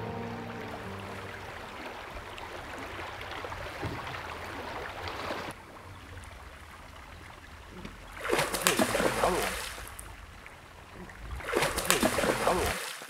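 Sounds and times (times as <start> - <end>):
river water rushing: 0.0 - 5.7.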